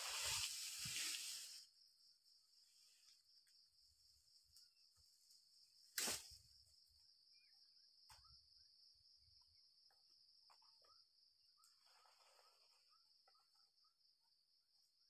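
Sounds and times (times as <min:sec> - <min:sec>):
soft rustle: 0:00.0 - 0:01.7
faint chirps: 0:00.0 - 0:15.0
insect chorus drone: 0:00.0 - 0:15.0.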